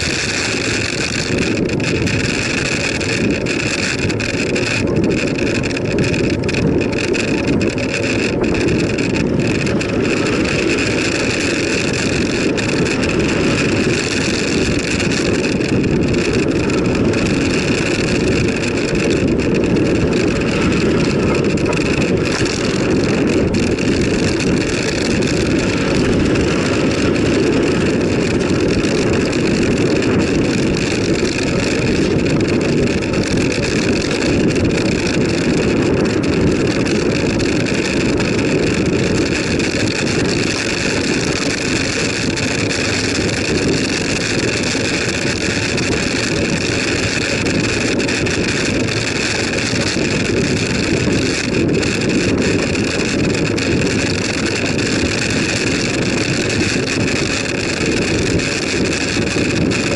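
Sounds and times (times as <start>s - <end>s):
bicycle tyre noise on tarmac: 0.0s - 59.9s
wind rumble on microphone: 0.0s - 59.9s.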